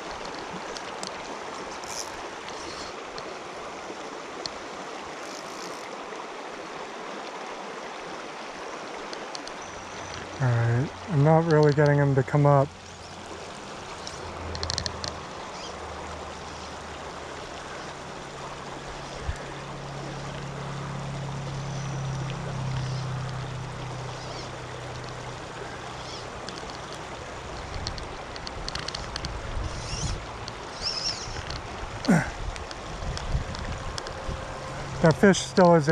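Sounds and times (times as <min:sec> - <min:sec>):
creek running over gravel: 0:00.0 - 0:35.9
light ticks: 0:11.4 - 0:12.0, 0:14.0 - 0:15.8, 0:26.0 - 0:34.2.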